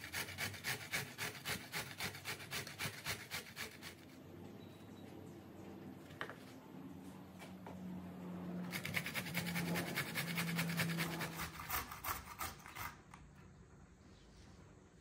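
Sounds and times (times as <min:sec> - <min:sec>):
grating on a box grater: 0:00.0 - 0:04.2, 0:08.6 - 0:13.1.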